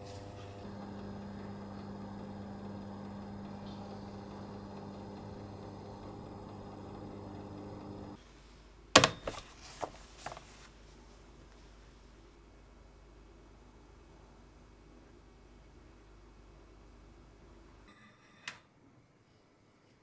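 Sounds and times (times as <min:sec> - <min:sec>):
oven fan humming: 0:00.0 - 0:08.2.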